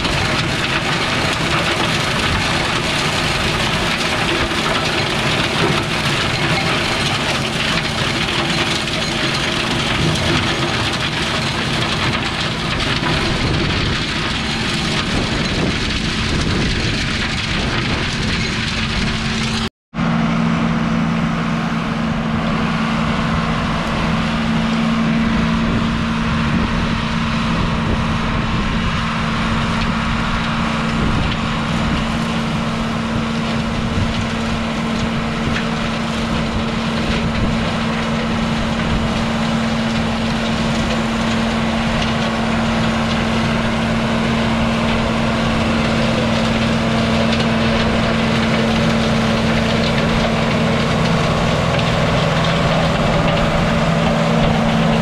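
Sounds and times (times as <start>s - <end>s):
flail mower chopping brush: 0.0s - 19.6s, 31.0s - 55.0s
tractor engine running: 0.0s - 55.0s.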